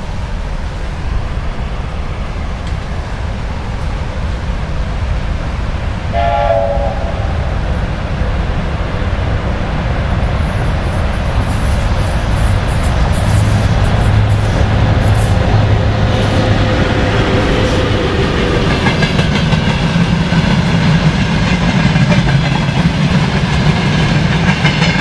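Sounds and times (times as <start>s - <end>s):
freight train low rumble: 0.0s - 25.0s
locomotive horn blast: 6.1s - 7.6s.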